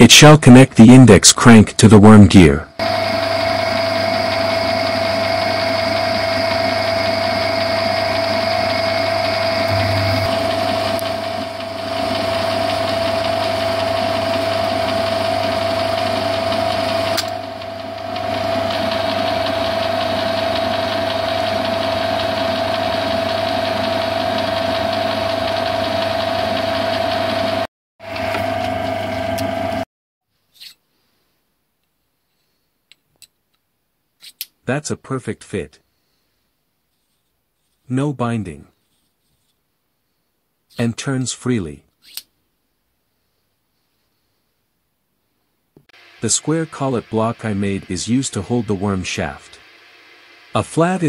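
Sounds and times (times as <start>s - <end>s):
metal lathe gear whine: 2.8s - 29.8s, 46.0s - 51.0s
low motor hum: 2.8s - 29.9s.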